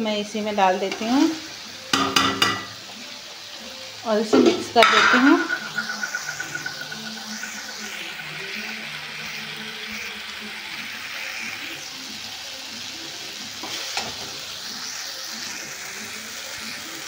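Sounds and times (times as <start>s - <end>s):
slices sizzling in oil: 0.0s - 17.0s
metal spatula stirring: 4.8s - 8.2s.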